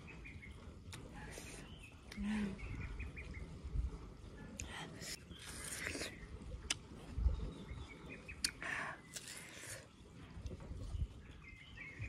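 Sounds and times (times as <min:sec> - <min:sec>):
person chewing watermelon: 0:04.6 - 0:07.1, 0:08.4 - 0:10.6.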